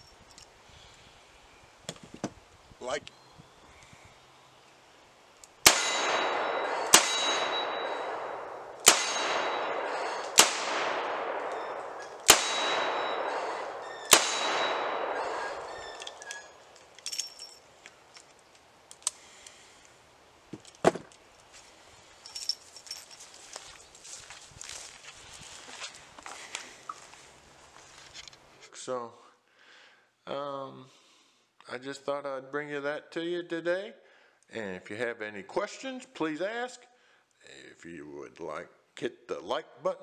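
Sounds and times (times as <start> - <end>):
revolver shots with echo: 5.7 - 16.0.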